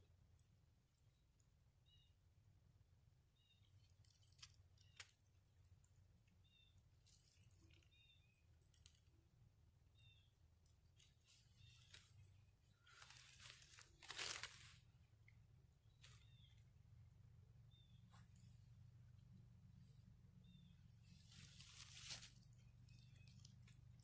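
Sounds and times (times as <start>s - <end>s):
small bird chirping: 0.0s - 24.0s
rustling: 3.6s - 6.0s, 6.8s - 9.2s, 10.6s - 15.0s, 15.9s - 16.6s, 20.9s - 24.0s.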